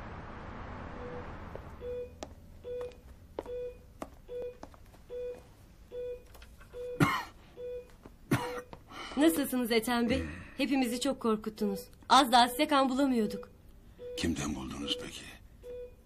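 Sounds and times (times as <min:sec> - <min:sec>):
heart monitor beeping: 0:01.0 - 0:08.8, 0:12.4 - 0:16.0.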